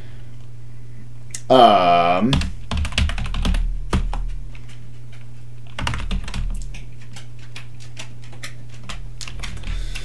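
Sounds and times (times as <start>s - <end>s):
steady low hum: 0.0s - 10.0s
computer keyboard typing: 2.3s - 10.0s.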